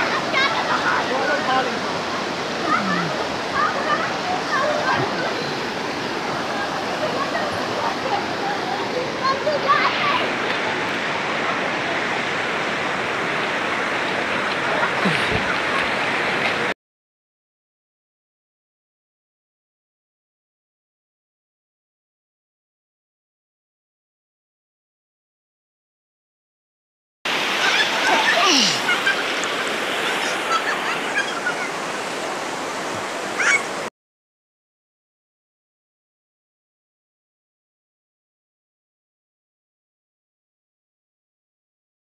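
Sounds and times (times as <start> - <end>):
water splashing: 0.0 - 16.7, 27.3 - 33.9
flowing river water: 0.0 - 16.8, 27.3 - 33.9
faint high squeaks and chirps: 33.4 - 33.7.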